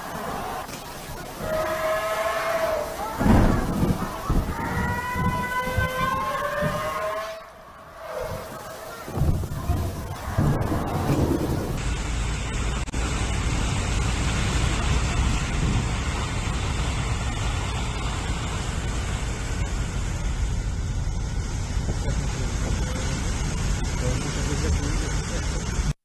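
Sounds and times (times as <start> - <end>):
rushing floodwater: 0.0 - 20.6
vehicles driving through water: 0.0 - 25.9.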